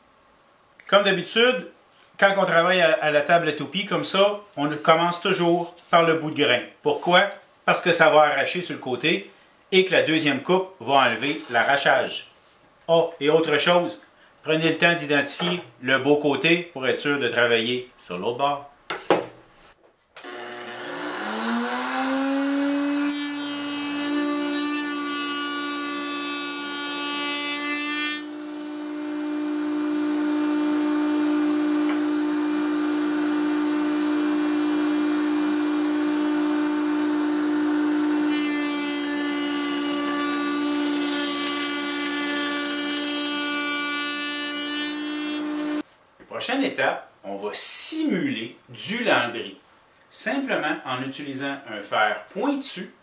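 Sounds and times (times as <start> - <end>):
router high whine: 20.2 - 23.0, 28.3 - 38.2
router bit cutting wood rasp: 20.2 - 45.8.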